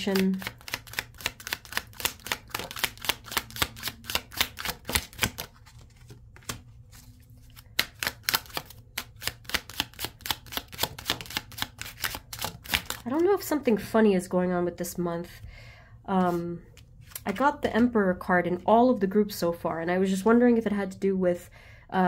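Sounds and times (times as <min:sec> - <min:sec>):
cards being shuffled: 0:00.0 - 0:13.3, 0:16.2 - 0:17.5.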